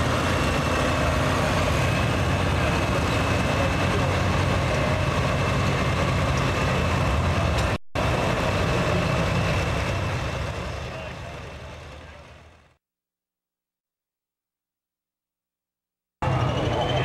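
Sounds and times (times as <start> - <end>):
diesel tractor engine under load: 0.0 - 12.8
high engine whine: 0.0 - 12.8, 16.2 - 17.0.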